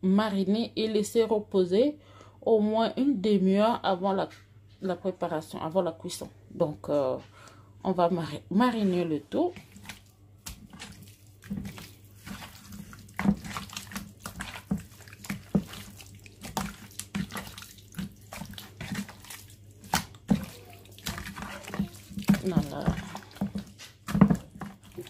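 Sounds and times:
wet squelches of meat in marinade: 8.7 - 25.0.

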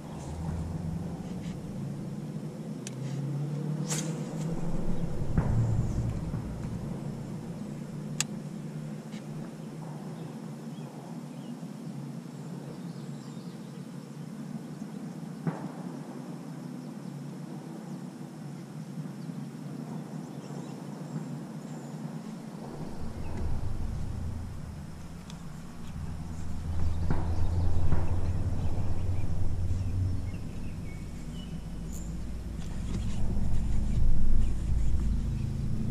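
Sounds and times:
low rumble: 0.0 - 3.5, 4.1 - 9.5, 22.6 - 35.9
faint bird chirps: 21.7 - 35.8.

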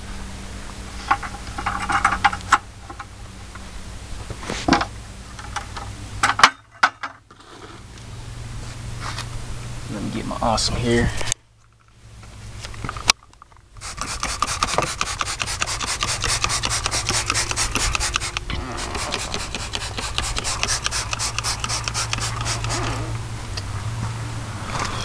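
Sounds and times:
steady low hum: 7.8 - 25.0
spray bottle squirting: 13.8 - 23.1
sharp click: 14.0 - 23.0.

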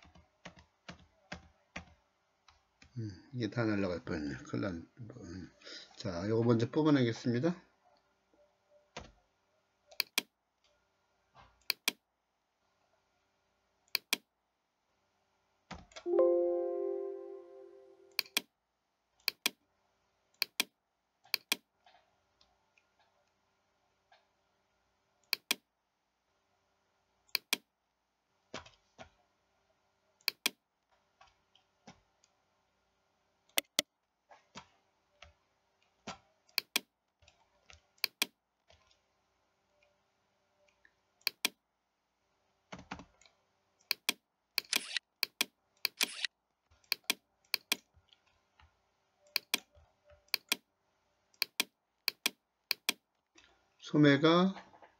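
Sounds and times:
computer mouse buttons clicking: 9.9 - 10.3, 11.6 - 12.0, 13.9 - 14.3, 18.1 - 18.5, 19.2 - 19.6, 20.4 - 20.7, 21.3 - 21.6, 25.2 - 25.6, 27.3 - 27.6, 30.2 - 30.6, 33.5 - 33.8, 36.5 - 38.3, 41.2 - 41.6, 43.8 - 46.3, 46.9 - 47.9, 49.3 - 50.6, 51.4 - 53.0
faint steady hum: 16.1 - 21.1.

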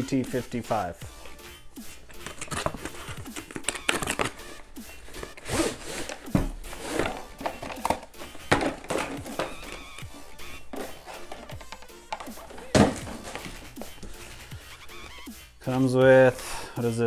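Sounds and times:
bag sliding out of cardboard box: 5.0 - 7.4.

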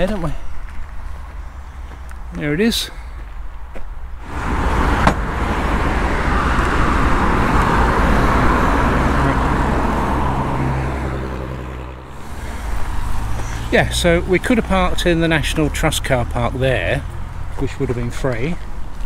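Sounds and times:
vehicle passing by: 4.2 - 19.0.

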